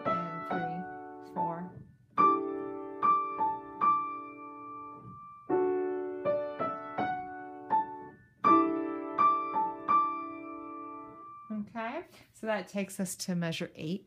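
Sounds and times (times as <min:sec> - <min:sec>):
piano playing chords and notes: 0:00.0 - 0:11.5.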